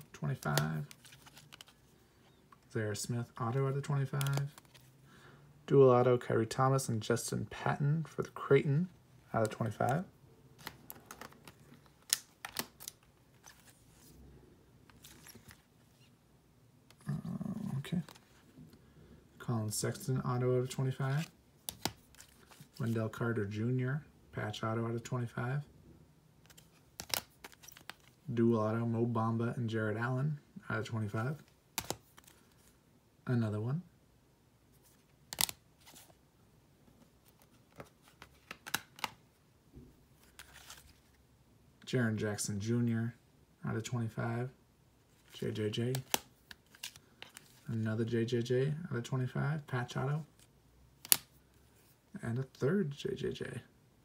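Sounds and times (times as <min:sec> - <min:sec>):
cards rustling: 0:00.0 - 0:05.0, 0:07.1 - 0:16.2, 0:16.9 - 0:18.8, 0:19.7 - 0:23.4, 0:26.4 - 0:28.3, 0:31.0 - 0:32.8, 0:34.7 - 0:36.2, 0:36.9 - 0:39.2, 0:40.1 - 0:41.2, 0:45.0 - 0:48.4, 0:49.8 - 0:52.9
cards clicking and tapping: 0:04.0 - 0:04.8, 0:10.6 - 0:13.7, 0:21.6 - 0:22.9, 0:26.5 - 0:28.1, 0:31.8 - 0:32.4, 0:35.3 - 0:36.0, 0:37.3 - 0:39.2, 0:45.9 - 0:47.6, 0:51.0 - 0:51.4.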